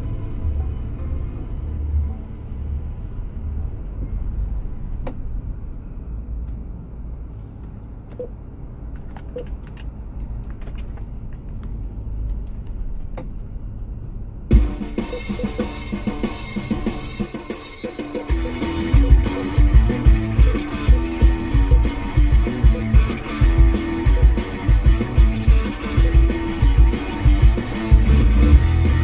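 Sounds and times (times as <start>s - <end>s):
car engine and tyres rumbling: 0.0s - 29.0s
music with drums: 14.5s - 29.0s.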